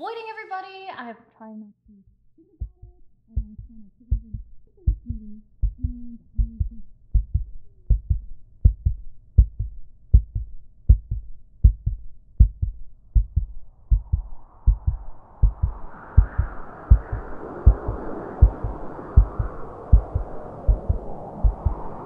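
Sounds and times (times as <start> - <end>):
heartbeat thumps: 1.8 - 21.9
rising hiss: 14.6 - 22.0.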